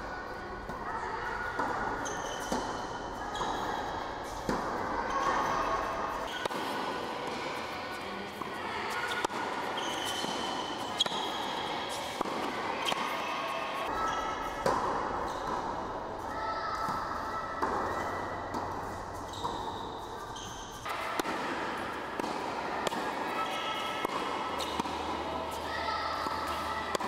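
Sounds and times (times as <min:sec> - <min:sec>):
racket hitting tennis ball: 0:01.4 - 0:05.6, 0:06.2 - 0:16.0, 0:16.8 - 0:27.0
tennis ball bouncing on court: 0:01.4 - 0:05.6, 0:06.2 - 0:13.2, 0:13.8 - 0:15.9, 0:16.8 - 0:27.0.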